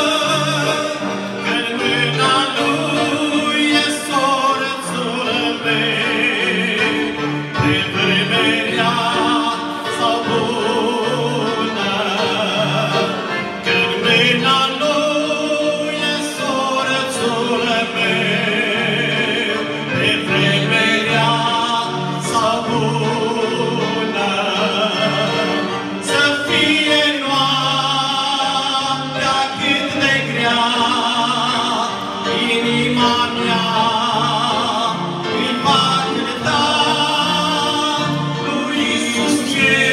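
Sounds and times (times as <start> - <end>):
accordions: 0.0 - 39.9
electric keyboard: 0.0 - 39.9
man singing with vibrato: 0.0 - 39.9.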